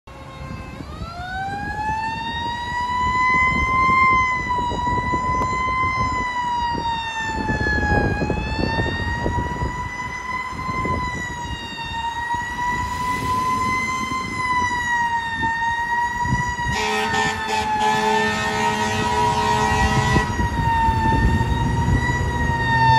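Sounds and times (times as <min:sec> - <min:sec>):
fire engine siren wailing: 0:00.1 - 0:22.9
blaring air horn: 0:16.2 - 0:21.5.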